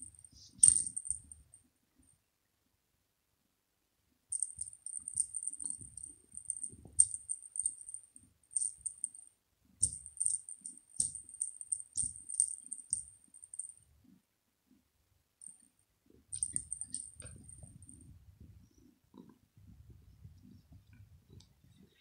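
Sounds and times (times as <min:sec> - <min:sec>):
small bell jingling in toy ball: 0:00.0 - 0:01.5, 0:04.3 - 0:09.2, 0:09.8 - 0:13.8, 0:16.3 - 0:18.1.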